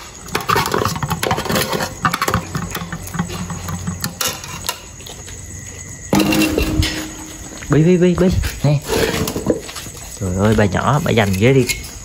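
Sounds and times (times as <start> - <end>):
metal pots clinking on concrete: 0.0 - 5.0, 6.1 - 7.8.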